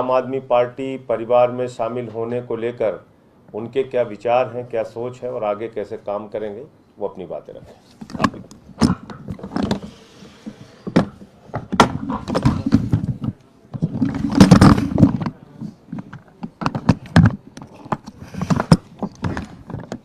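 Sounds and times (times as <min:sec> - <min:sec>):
microphone rubbing: 0:07.6 - 0:20.0
microphone handling knocks and thumps: 0:08.0 - 0:20.0.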